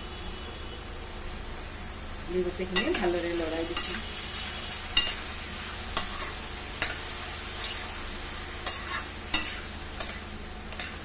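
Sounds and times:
frying sizzle: 0.0s - 11.0s
metal spatula scraping pan: 2.7s - 8.0s, 8.6s - 11.0s.

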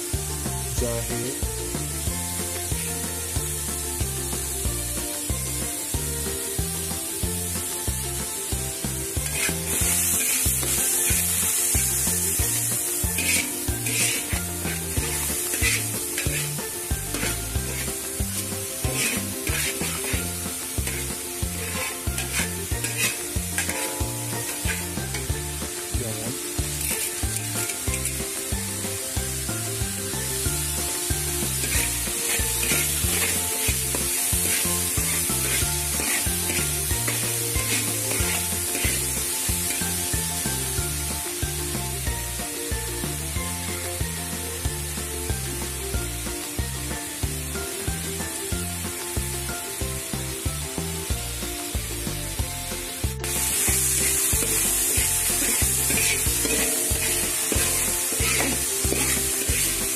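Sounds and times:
background music with steady beat: 0.0s - 59.9s
paste sizzling in hot oil: 0.0s - 59.9s
spatula scraping and stirring: 9.2s - 25.3s, 26.6s - 28.2s, 31.0s - 40.0s, 53.3s - 59.9s.

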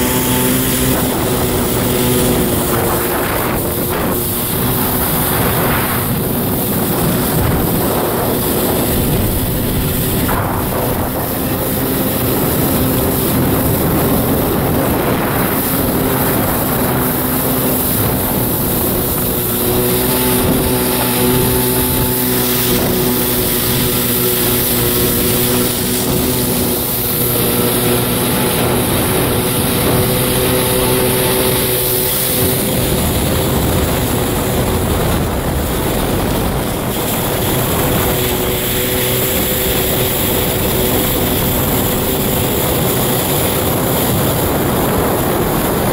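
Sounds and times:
jet ski engine running: 0.0s - 45.9s
water spray rushing: 0.0s - 45.9s
wind: 0.0s - 45.9s.

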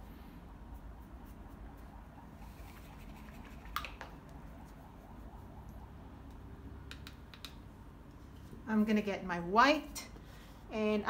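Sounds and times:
paintbrush scratching on canvas: 0.0s - 5.2s.

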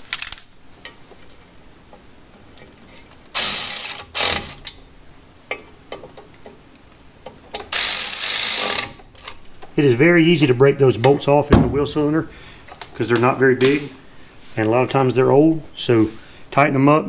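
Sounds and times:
power ratchet running: 3.3s - 4.7s, 7.7s - 9.0s.

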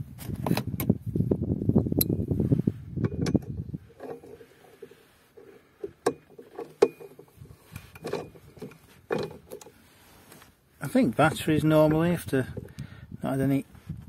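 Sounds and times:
socket wrench clicking: 3.0s - 4.1s
sharp metallic clicks and knocks: 3.0s - 4.4s, 5.8s - 9.8s.

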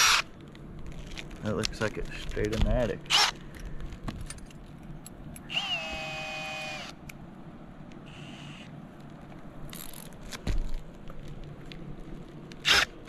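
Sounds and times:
cordless drill motor whining: 3.1s - 3.4s, 5.4s - 7.0s, 8.1s - 8.7s, 12.6s - 12.9s.

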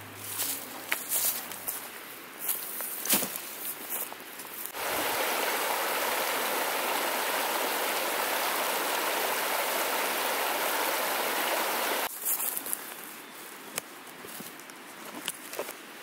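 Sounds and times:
river rushing over stones: 4.7s - 12.1s.

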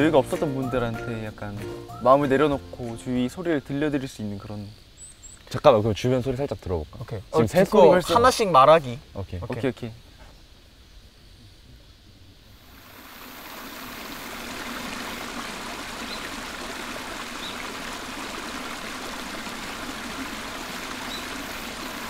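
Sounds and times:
faint high bird chirps: 4.9s - 5.5s, 21.0s - 21.4s
stream water rushing: 12.6s - 22.0s.

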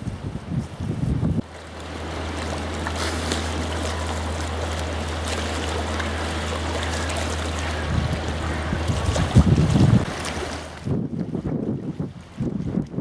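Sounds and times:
steady low hum: 1.3s - 11.2s
lake water lapping: 1.4s - 13.0s.

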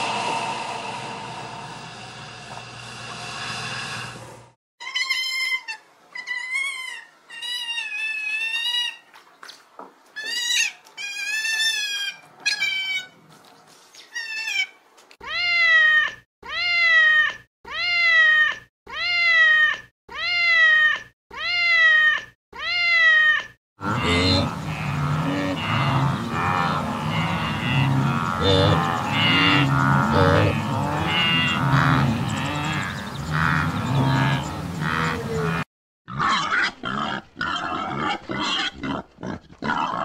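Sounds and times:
noisy sound: 0.0s - 4.6s
cat meowing: 15.3s - 23.5s.

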